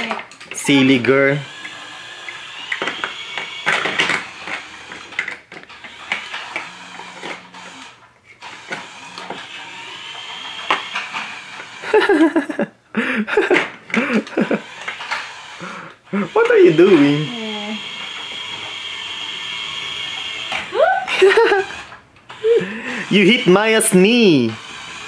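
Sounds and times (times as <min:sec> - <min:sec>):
plastic toy pieces clattering: 0:01.5 - 0:09.5, 0:13.4 - 0:15.4.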